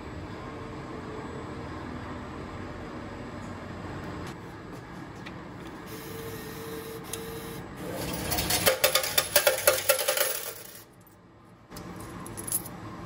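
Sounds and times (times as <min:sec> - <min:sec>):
coin changer mechanism running: 0:05.8 - 0:11.2, 0:11.8 - 0:12.8
coins clattering into metal tray: 0:08.0 - 0:11.0
coin clink: 0:08.0 - 0:11.1, 0:11.9 - 0:12.8.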